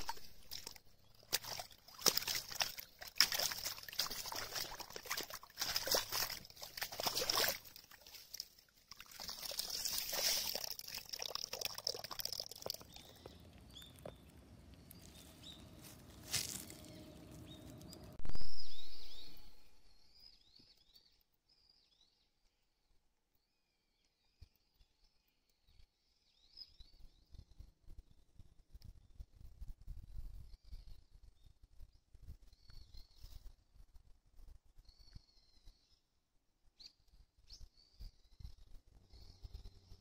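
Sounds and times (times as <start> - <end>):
net sloshing water: 0.0 - 13.2
water trickling off mesh: 0.0 - 18.1.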